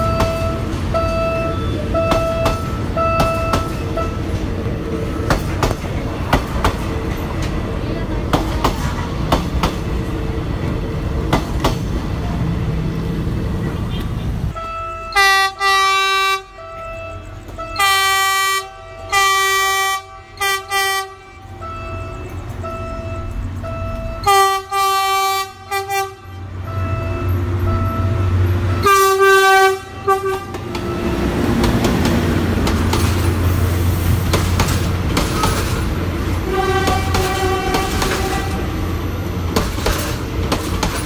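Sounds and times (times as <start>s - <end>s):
locomotive horn blasts: 0.0s - 4.4s, 13.9s - 32.0s, 36.4s - 38.9s
train rumbling past on rails: 0.0s - 41.0s.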